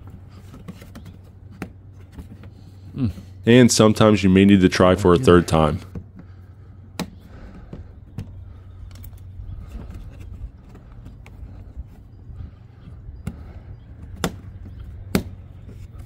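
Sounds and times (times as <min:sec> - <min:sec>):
low background rumble: 0:00.0 - 0:16.0
light plastic scraping: 0:07.1 - 0:12.0.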